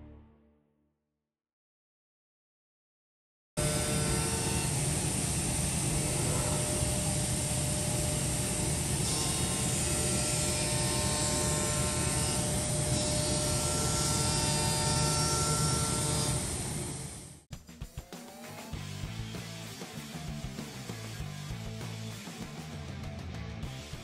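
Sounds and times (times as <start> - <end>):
machine spindle cutting metal: 3.6 - 17.3
steady whining tones: 3.6 - 17.4.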